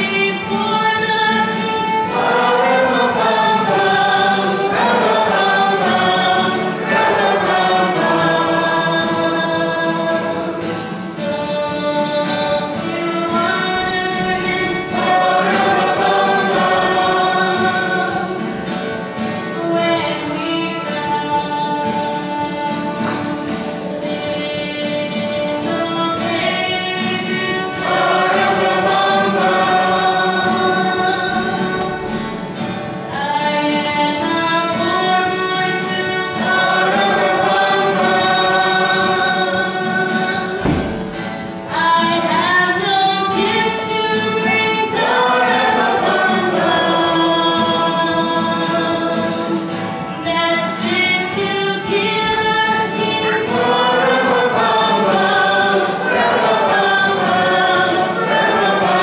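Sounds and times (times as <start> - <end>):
acoustic guitar: 0.0 - 59.0
violin: 0.0 - 59.0
voices singing a carol: 0.0 - 59.0.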